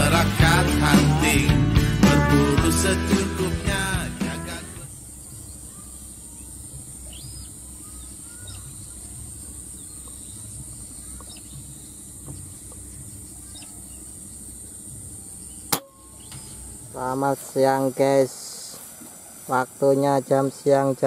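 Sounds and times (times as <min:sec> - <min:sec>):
bird chirps: 0:04.9 - 0:17.0
high-pitched hiss: 0:13.9 - 0:21.0.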